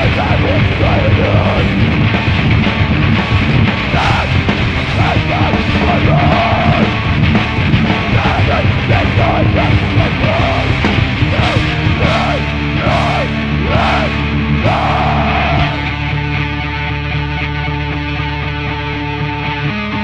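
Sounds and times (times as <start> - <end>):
yelled vocals: 0.0 - 16.3
punk band playing: 0.0 - 20.0.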